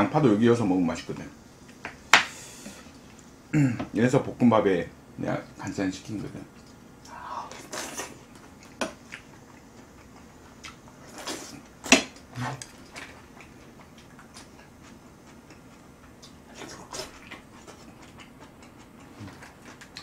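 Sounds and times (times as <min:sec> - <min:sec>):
chewing smacks: 0:06.5 - 0:20.0.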